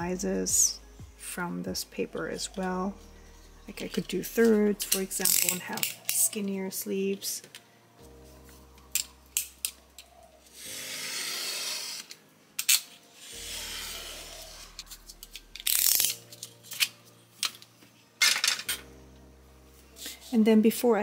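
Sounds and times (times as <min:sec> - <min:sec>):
knife slicing paper along ruler: 0:10.8 - 0:12.2.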